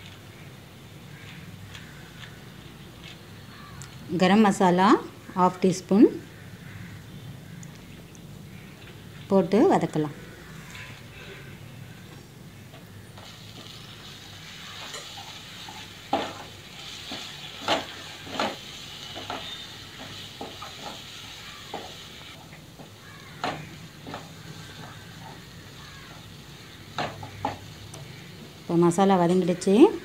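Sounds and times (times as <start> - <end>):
oil sizzling: 12.6 - 30.0
wooden spatula scraping pan: 14.6 - 22.0
spatula knocking against pan: 22.8 - 25.0.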